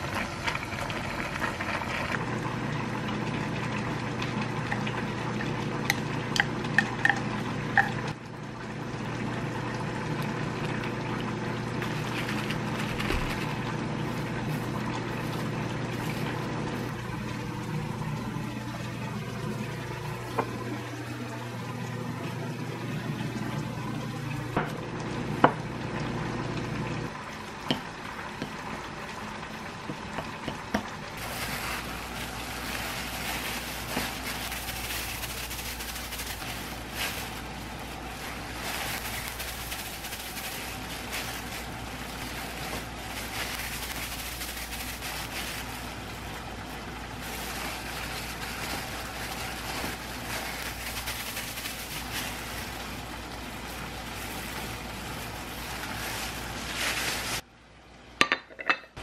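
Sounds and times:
plastic gloves crackling: 11.8s - 19.3s, 31.2s - 57.4s.

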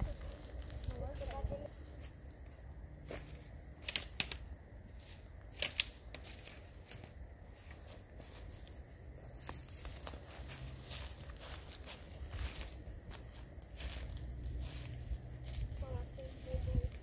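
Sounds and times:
dry leaves and twigs crackling: 0.0s - 17.0s
twigs snapping: 3.1s - 7.2s.

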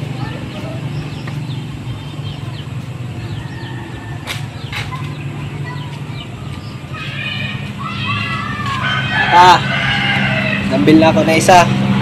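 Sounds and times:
small birds chirping: 0.0s - 9.0s.

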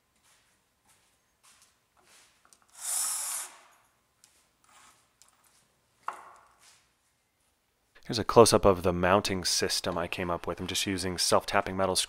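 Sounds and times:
cordless drill driving screw: 2.7s - 3.8s.

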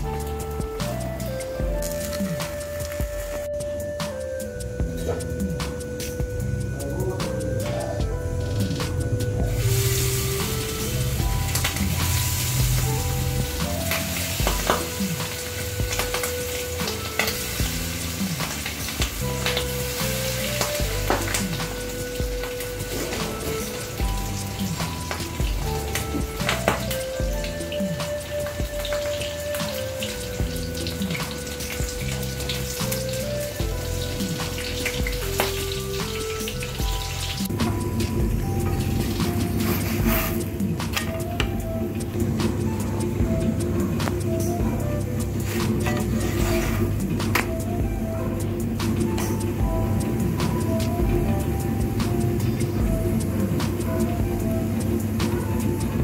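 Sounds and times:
background music with bass: 0.0s - 56.0s
chicken sizzling in hot oil: 8.4s - 41.1s, 41.9s - 56.0s
food frying in a pan: 8.5s - 41.3s.

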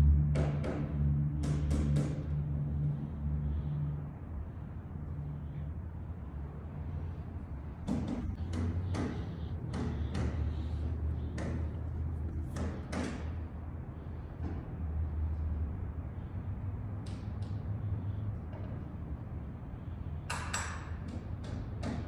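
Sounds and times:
steady low hum: 0.0s - 22.0s
construction banging: 7.0s - 14.7s.

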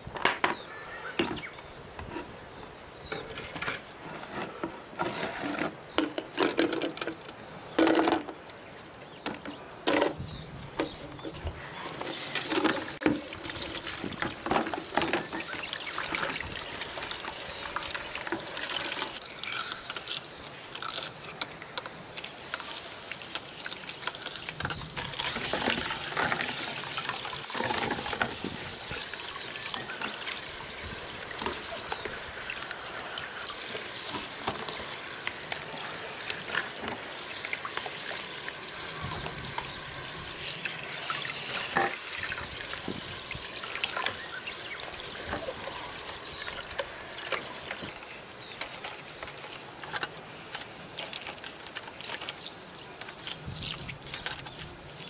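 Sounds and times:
plastic parts knocking: 4.4s - 8.4s.

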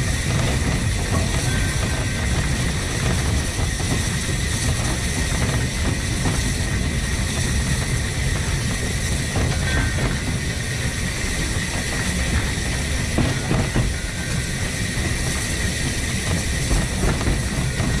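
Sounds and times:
steam locomotive rumbling: 0.0s - 18.0s.

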